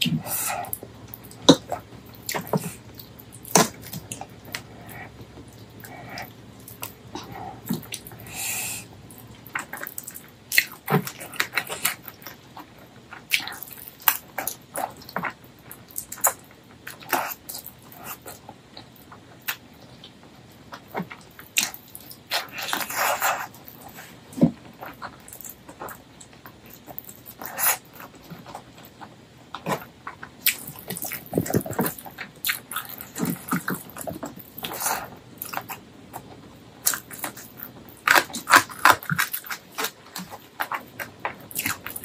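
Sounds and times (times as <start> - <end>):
sticky finger and food noises: 0.0 - 42.0
wet chewing and lip smacks: 24.8 - 42.0.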